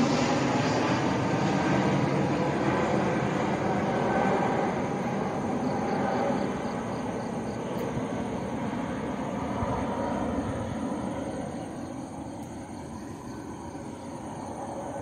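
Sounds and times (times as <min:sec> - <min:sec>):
airplane engine drone: 0:00.0 - 0:15.0.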